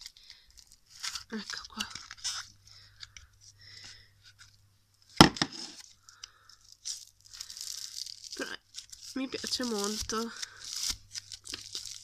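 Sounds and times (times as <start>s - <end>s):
slime crackling and popping: 6.6s - 12.0s.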